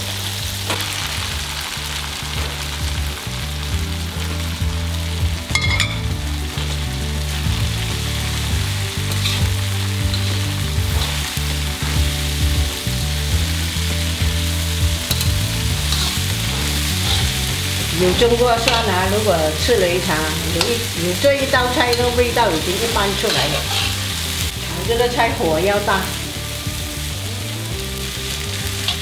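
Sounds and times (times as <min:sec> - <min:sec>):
food sizzling in a wok: 0:00.0 - 0:29.0
spatula clinking on pan: 0:05.5 - 0:06.1
spatula scraping a wok: 0:06.0 - 0:14.0, 0:14.7 - 0:24.7, 0:28.3 - 0:29.0.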